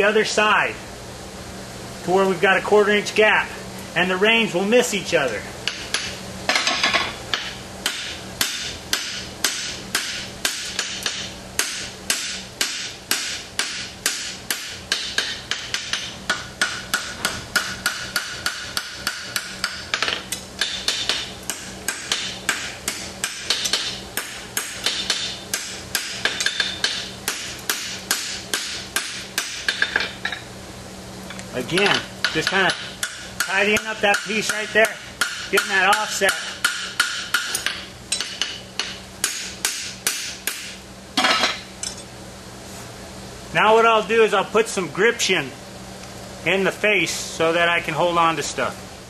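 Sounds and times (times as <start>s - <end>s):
hammer striking hot steel on anvil: 5.6s - 30.4s, 31.7s - 42.1s.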